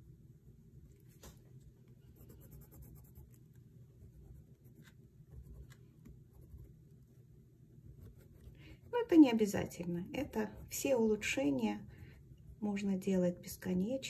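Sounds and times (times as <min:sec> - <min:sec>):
pencil scratching on paper: 0:02.0 - 0:07.1, 0:07.9 - 0:12.8.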